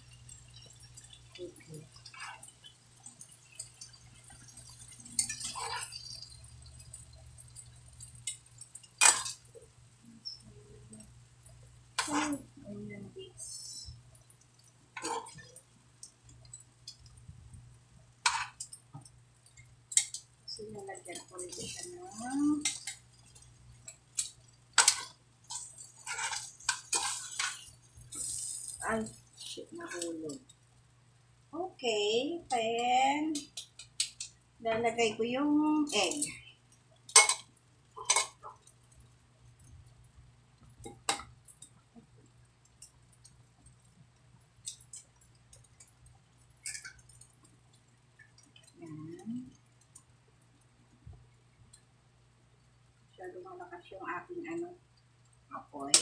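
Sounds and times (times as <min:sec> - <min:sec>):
faint low hum: 0:00.0 - 0:56.0
tongs and spoon scraping clay pot: 0:04.9 - 0:06.3, 0:12.0 - 0:12.5, 0:15.0 - 0:15.6, 0:18.2 - 0:18.7, 0:20.8 - 0:30.3, 0:38.0 - 0:38.7, 0:46.6 - 0:47.2.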